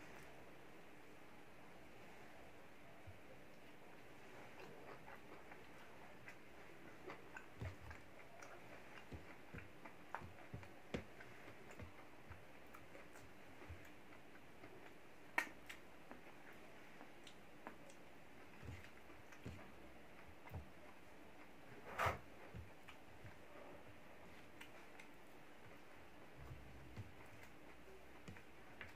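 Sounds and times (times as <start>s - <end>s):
faint steady hiss: 0.0s - 28.9s
chewing clicks and smacks: 4.6s - 20.6s.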